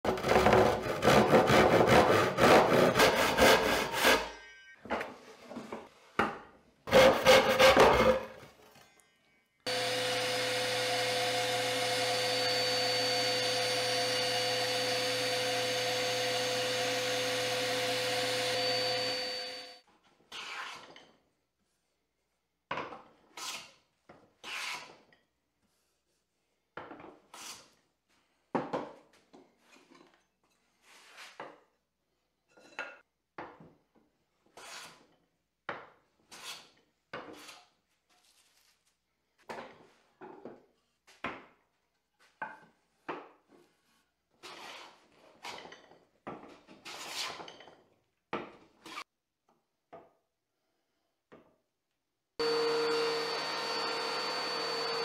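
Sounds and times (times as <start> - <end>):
hand plane on wooden board: 0.1 - 4.3, 6.9 - 8.3
power tool running: 9.7 - 19.8, 52.4 - 55.0.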